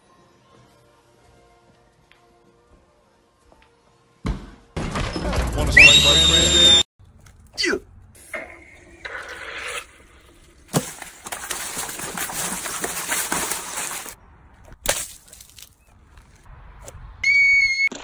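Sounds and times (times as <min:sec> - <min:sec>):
water balloons popping: 0:10.6 - 0:14.2.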